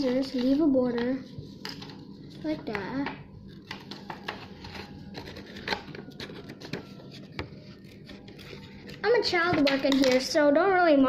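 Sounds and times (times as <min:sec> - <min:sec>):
scissors snipping paper: 0:03.6 - 0:09.1
paper rustle: 0:03.6 - 0:10.0.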